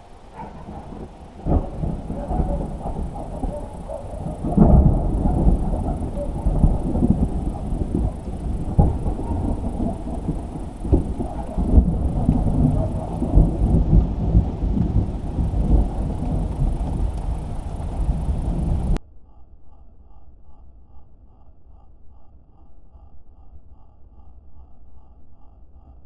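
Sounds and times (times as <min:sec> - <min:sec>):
thunder rumbling: 0:00.0 - 0:19.0.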